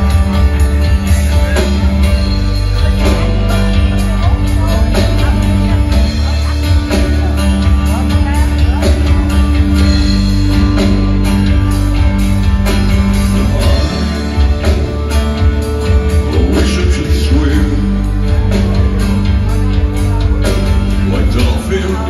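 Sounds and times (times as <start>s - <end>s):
drums: 0.0s - 22.0s
plucked and strummed strings: 0.0s - 22.0s
person singing: 13.2s - 19.0s, 19.8s - 22.0s.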